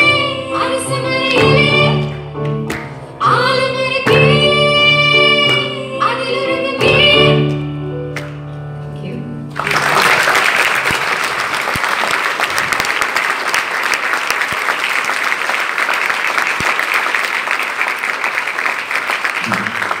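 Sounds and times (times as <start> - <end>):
audience applauding: 9.5 - 20.0.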